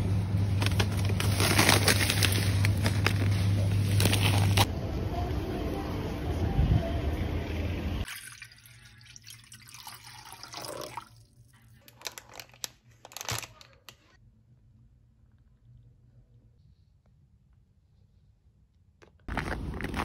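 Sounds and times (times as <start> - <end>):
water splashing in a saucepan: 8.0 - 11.4.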